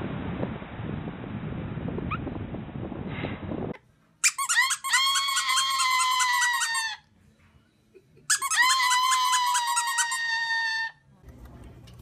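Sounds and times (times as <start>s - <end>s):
parrot calling: 4.2s - 7.1s, 8.3s - 11.0s.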